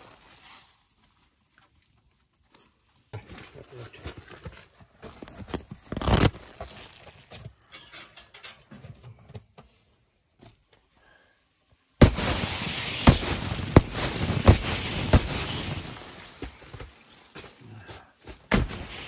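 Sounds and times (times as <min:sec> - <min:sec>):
ice pellets pattering on tent: 0:00.0 - 0:07.4, 0:12.0 - 0:17.8, 0:18.5 - 0:19.0.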